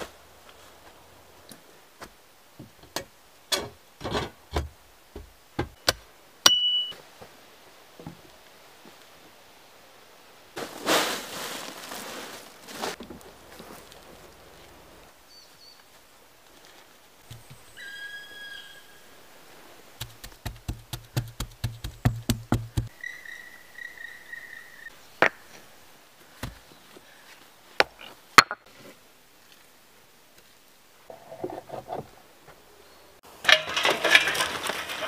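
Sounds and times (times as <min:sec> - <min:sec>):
stick knocking on log wall: 0:20.0 - 0:22.9
stones knocking: 0:20.0 - 0:22.9.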